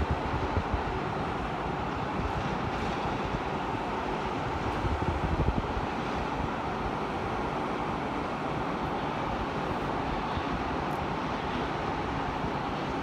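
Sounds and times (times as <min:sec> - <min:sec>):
wind buffeting microphone: 0:00.0 - 0:07.1
steady rushing outdoor noise: 0:00.0 - 0:13.0.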